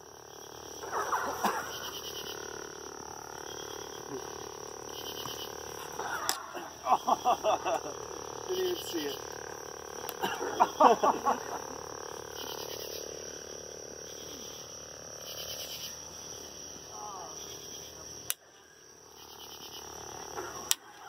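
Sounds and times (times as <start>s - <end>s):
high-pitched insect drone: 0.0s - 21.0s
sharp clicks: 10.0s - 10.2s, 18.2s - 18.4s.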